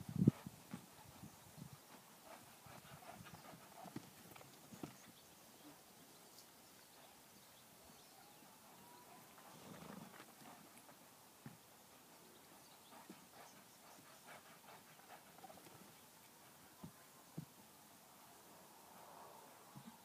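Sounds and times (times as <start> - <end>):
muffled hoofbeats on sand: 0.0 - 5.2, 12.6 - 16.0.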